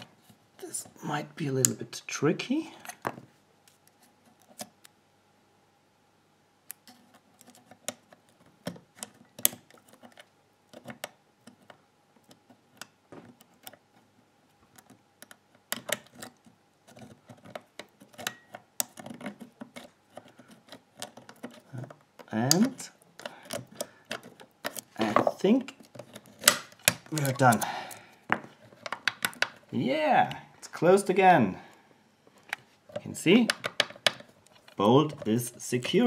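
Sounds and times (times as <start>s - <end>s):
lock picks clicking and scraping: 6.7s - 14.1s, 14.7s - 28.0s, 28.6s - 29.7s, 32.4s - 36.0s.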